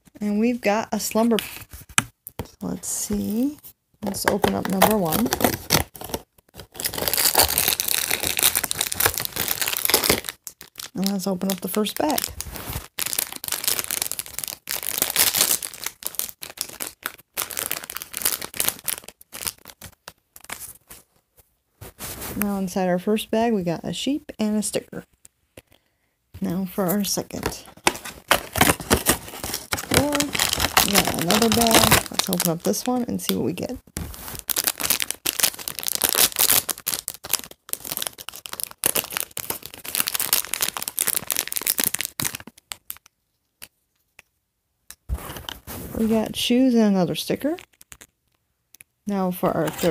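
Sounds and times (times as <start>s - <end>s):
plastic bag tearing and crinkling: 4.3s - 20.8s, 27.4s - 33.4s, 34.0s - 43.0s, 49.5s - 49.9s.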